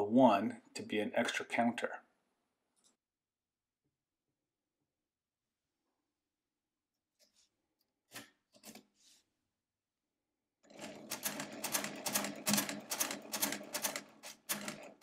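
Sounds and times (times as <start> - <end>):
calculator crank clattering: 10.7 - 15.0.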